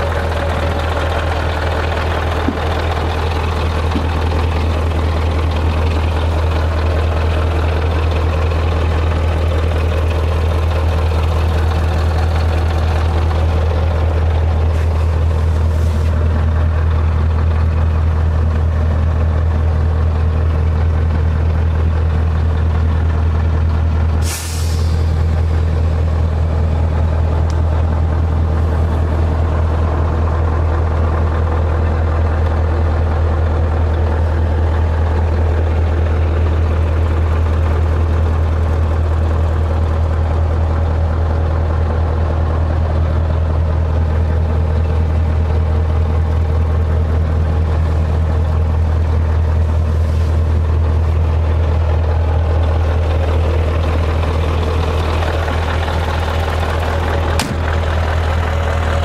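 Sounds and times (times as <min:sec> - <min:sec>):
diesel truck idling: 0:00.0 - 0:59.0
compressed air hiss: 0:24.2 - 0:25.1.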